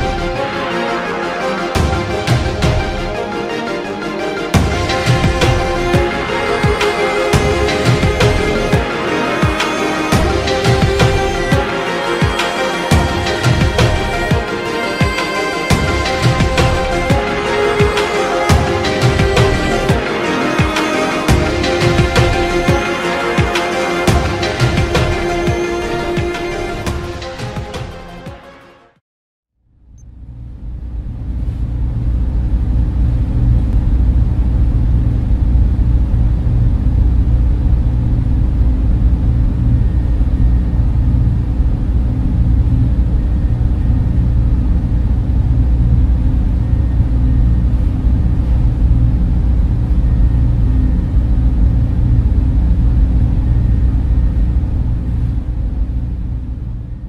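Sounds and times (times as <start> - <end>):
server room machine hum: 0.0 - 27.6, 29.8 - 57.0.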